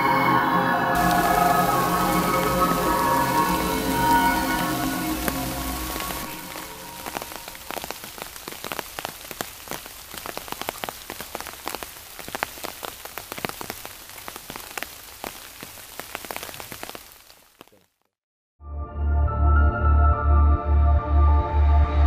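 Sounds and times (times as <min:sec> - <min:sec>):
rain pattering on leaves: 0:01.0 - 0:18.1.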